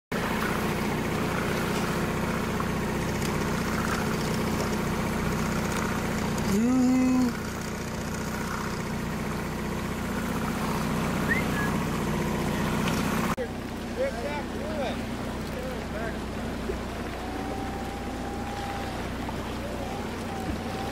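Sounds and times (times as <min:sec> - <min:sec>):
boat engine idling: 0:00.1 - 0:20.9
short pitched call: 0:11.2 - 0:11.9.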